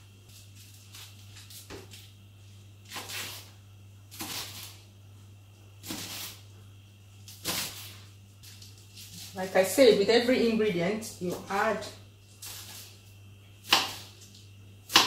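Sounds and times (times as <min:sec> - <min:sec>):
low steady hum: 0:00.0 - 0:15.0
knife slicing leaves on wooden board: 0:02.8 - 0:04.8, 0:05.8 - 0:06.4, 0:07.3 - 0:09.4, 0:12.4 - 0:12.9, 0:13.6 - 0:14.2.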